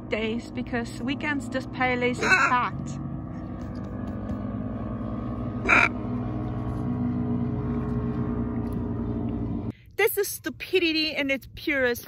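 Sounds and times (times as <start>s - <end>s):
dirt bike engines droning: 0.0s - 9.8s
macaw squawk: 2.2s - 2.7s, 5.6s - 6.0s.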